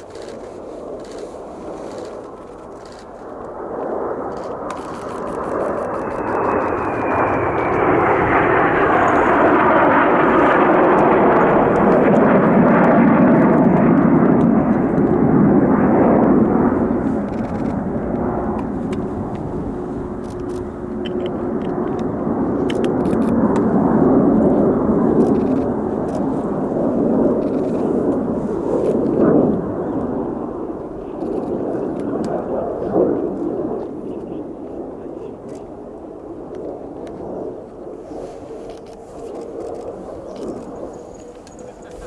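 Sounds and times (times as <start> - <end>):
jet aircraft roaring by: 0.0 - 42.0
jet whine falling in pitch: 3.5 - 25.8.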